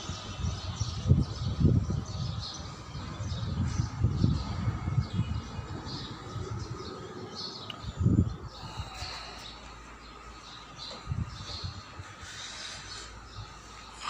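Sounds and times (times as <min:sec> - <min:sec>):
low rumbles on microphone: 0:00.0 - 0:09.6
small birds chirping: 0:00.0 - 0:14.0.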